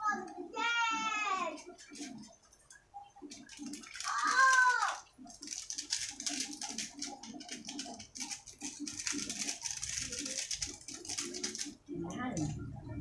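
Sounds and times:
plastic sachet crinkling: 1.5 - 2.4, 3.1 - 11.8.

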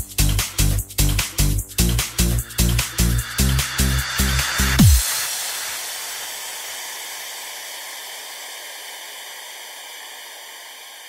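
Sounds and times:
pounding dance beat: 0.0 - 6.0
hiss of noise: 1.7 - 11.0.

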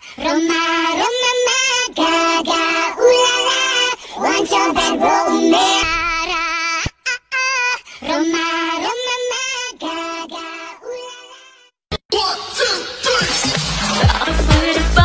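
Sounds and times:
woman singing with vibrato: 0.1 - 6.8, 14.1 - 15.0.

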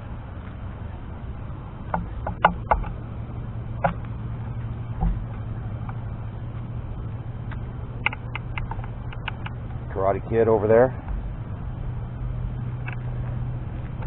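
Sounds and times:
road rumble: 0.0 - 14.0
scooter engine hum: 0.0 - 14.0
wind: 0.0 - 14.0
sharp clicks and knocks: 1.8 - 3.0, 3.8 - 6.0, 7.4 - 9.8, 12.8 - 14.0.

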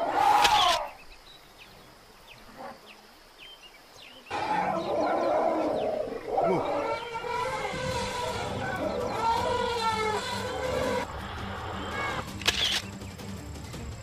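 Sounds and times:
elephants trumpeting and roaring: 4.3 - 12.3.

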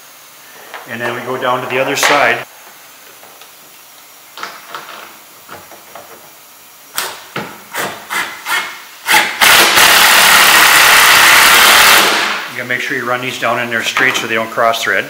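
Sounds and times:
impact driver driving a screw: 7.7 - 12.3.

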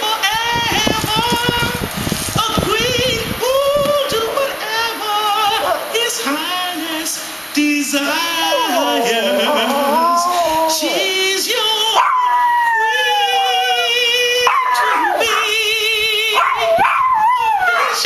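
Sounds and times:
song singing: 0.0 - 16.9
dog howling: 5.4 - 6.0, 8.0 - 15.6, 16.3 - 18.0.

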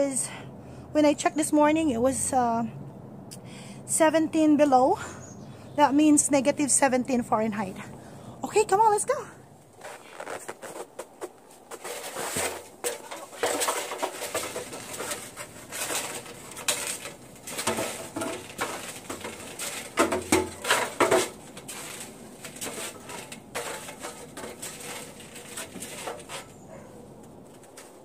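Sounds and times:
boots on metal ladder rungs: 9.8 - 28.0.

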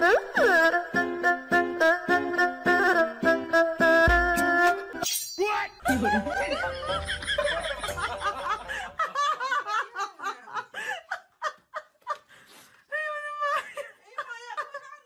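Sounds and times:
person laughing: 5.8 - 12.1.

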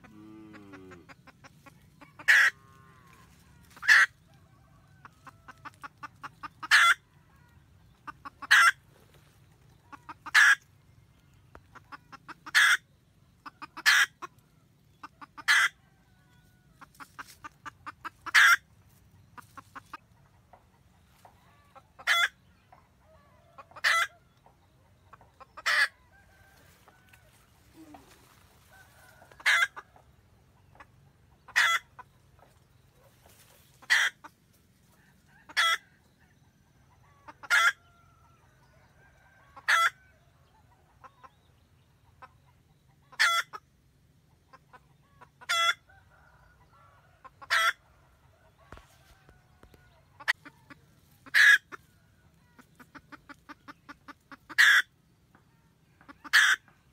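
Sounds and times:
hen cackling: 0.0 - 10.7, 11.6 - 18.7, 21.1 - 22.4, 23.0 - 24.3, 25.1 - 30.0, 30.7 - 32.1, 33.3 - 35.9, 37.0 - 38.0, 39.3 - 40.0, 42.2 - 43.7, 44.5 - 47.8, 50.2 - 55.0, 56.0 - 56.8.

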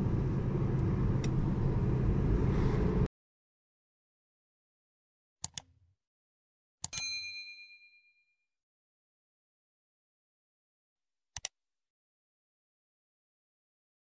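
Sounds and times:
car road and engine rumble: 0.0 - 3.1
mouse clicks: 11.4 - 11.6.

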